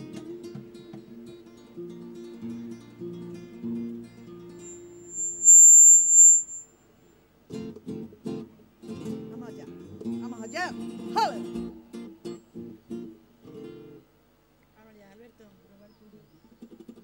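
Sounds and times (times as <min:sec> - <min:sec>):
high-pitched tone: 0:04.7 - 0:06.7.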